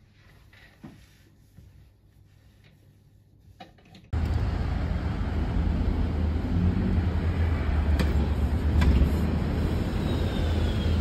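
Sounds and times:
street traffic rumble: 4.2s - 11.0s.

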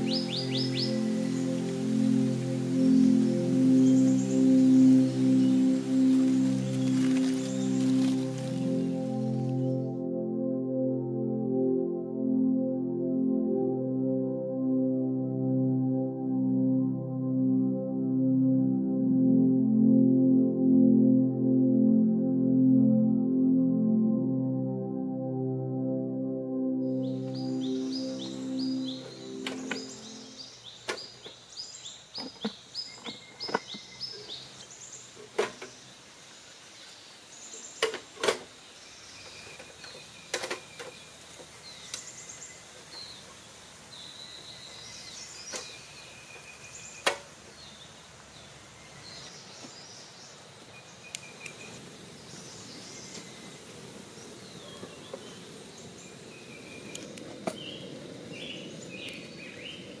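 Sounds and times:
birds chirping: 0.0s - 10.0s, 26.9s - 36.0s, 38.9s - 60.0s.

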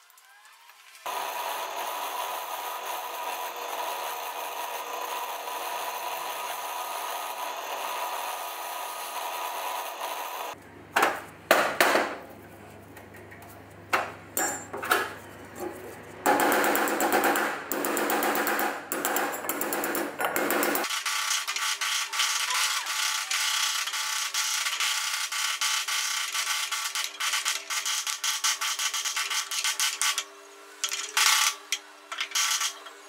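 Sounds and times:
machine whirring: 0.9s - 10.6s.

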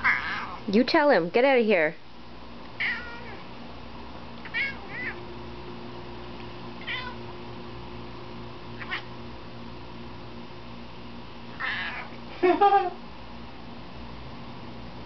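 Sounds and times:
cat chirping: 2.8s - 3.4s, 4.4s - 5.2s, 6.8s - 7.2s, 8.8s - 9.1s, 11.6s - 12.1s.

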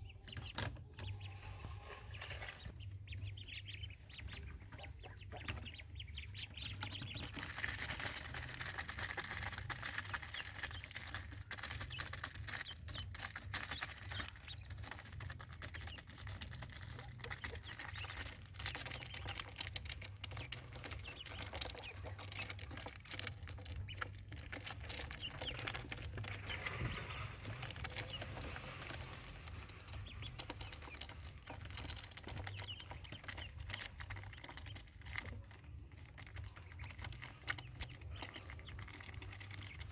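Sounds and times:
ducklings peeping: 0.0s - 39.9s.

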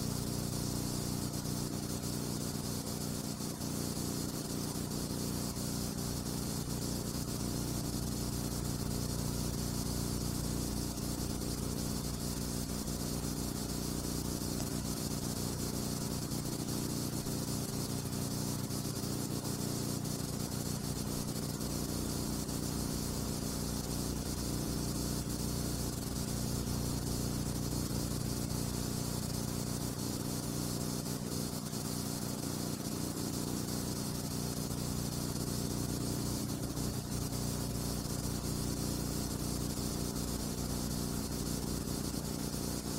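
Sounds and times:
steady hiss: 0.0s - 42.9s.

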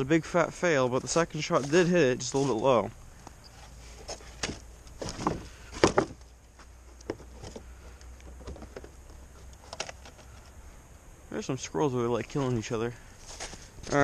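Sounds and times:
arrows knocking and scraping: 3.6s - 6.3s.

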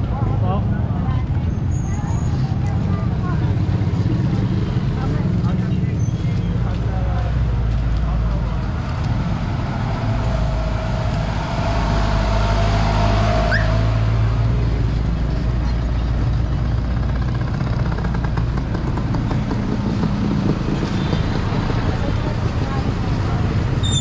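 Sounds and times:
street noise: 0.0s - 24.0s
vehicle engine humming: 2.4s - 24.0s
brief rising squeak: 23.8s - 24.0s.

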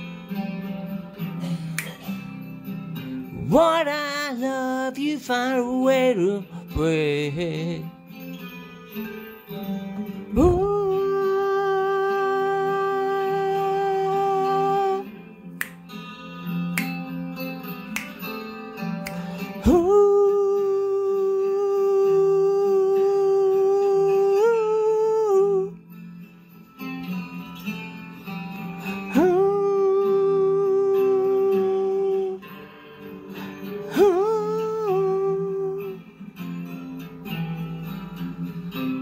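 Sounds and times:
acoustic guitar playing: 0.0s - 39.0s
person singing wordless notes: 10.1s - 15.8s, 19.0s - 25.8s, 29.1s - 32.4s, 33.8s - 36.1s.

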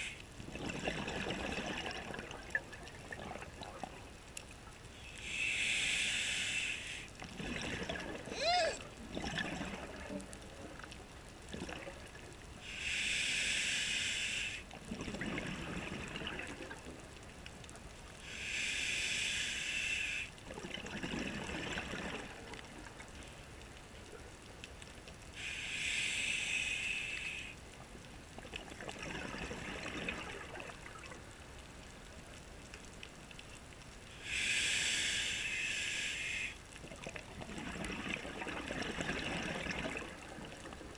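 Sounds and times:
exhaled bubbles underwater: 0.4s - 4.1s, 7.2s - 12.4s, 14.7s - 17.1s, 20.4s - 23.0s, 28.4s - 31.3s, 36.8s - 40.9s.

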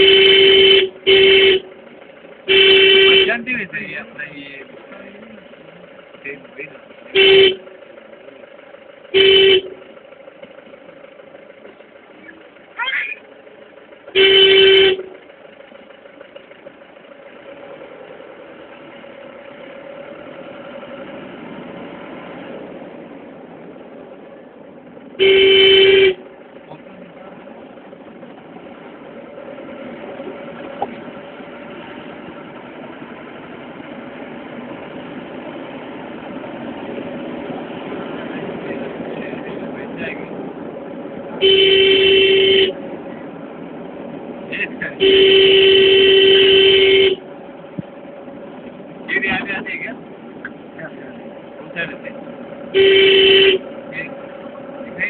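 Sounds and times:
car horn honking: 0.0s - 3.7s, 7.1s - 7.9s, 9.1s - 9.9s, 14.1s - 15.3s, 25.1s - 26.9s, 41.4s - 43.1s, 44.8s - 47.4s, 52.7s - 54.1s
engine hum and road noise: 0.0s - 55.0s.

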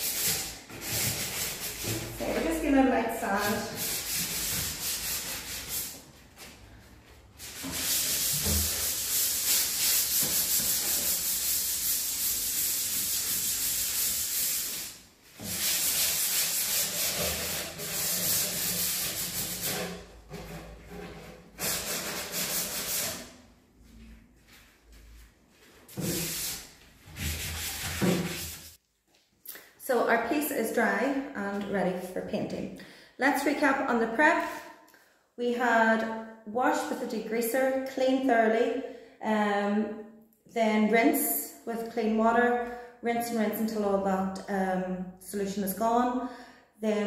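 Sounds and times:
sandpaper rubbing on wood: 0.0s - 2.6s, 3.3s - 6.0s, 7.4s - 19.9s, 21.6s - 23.3s, 25.9s - 28.8s.

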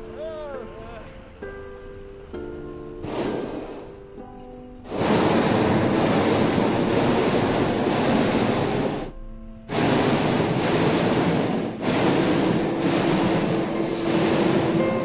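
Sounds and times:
propane burner rushing: 3.0s - 4.2s, 4.8s - 15.0s.

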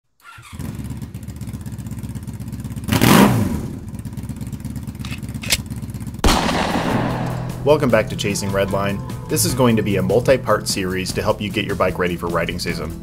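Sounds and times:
motorcycle engine starting and running: 0.0s - 6.2s.

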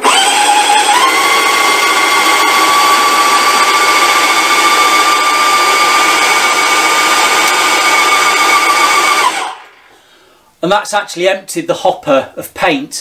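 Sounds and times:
paint sprayer whining and hissing: 0.0s - 10.0s.

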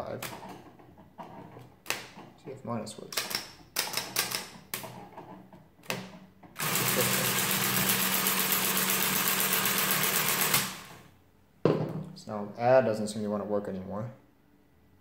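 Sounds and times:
calculator mechanism clattering: 6.6s - 10.9s.

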